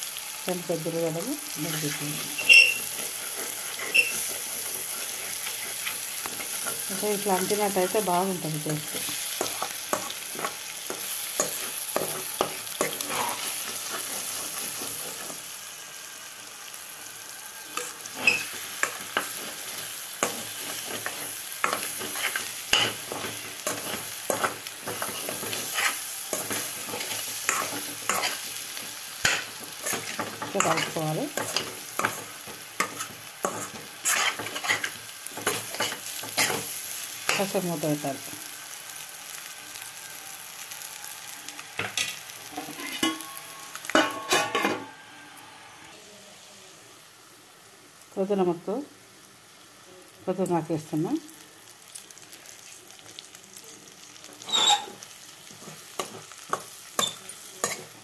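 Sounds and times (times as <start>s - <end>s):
food sizzling in pan: 0.0s - 58.0s
metal spoon scraping pan: 1.7s - 8.0s, 17.8s - 36.7s, 42.0s - 44.8s, 54.4s - 55.0s, 55.6s - 57.9s.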